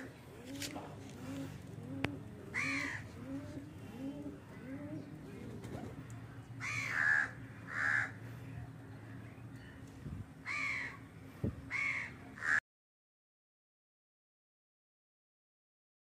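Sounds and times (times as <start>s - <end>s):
pigeon cooing: 0.0s - 6.0s
crows cawing: 2.5s - 3.1s, 6.6s - 8.2s, 10.4s - 11.0s, 11.7s - 12.6s.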